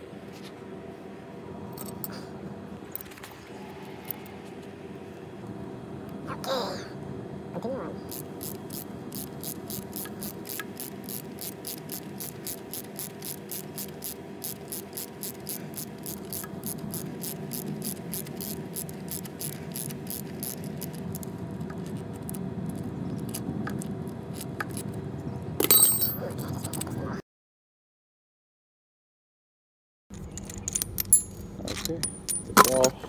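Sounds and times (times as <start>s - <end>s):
wrench rapid clicking: 8.1s - 21.3s.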